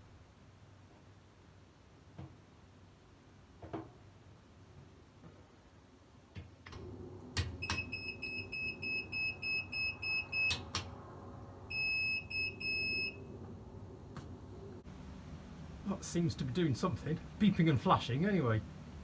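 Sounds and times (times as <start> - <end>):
longer beeps: 7.6 - 10.6, 11.7 - 13.2.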